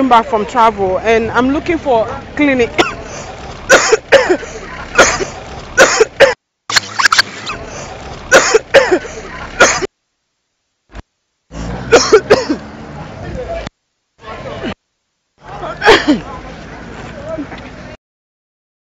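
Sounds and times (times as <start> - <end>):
person coughing harshly: 3.7 - 6.4, 8.3 - 9.9, 11.9 - 12.6, 15.8 - 16.2.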